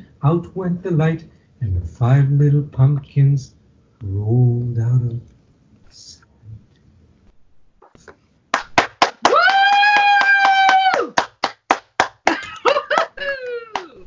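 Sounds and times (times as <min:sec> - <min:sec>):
hand clapping: 0:07.9 - 0:14.0
person cheering and whooping: 0:09.2 - 0:11.4, 0:12.2 - 0:14.0.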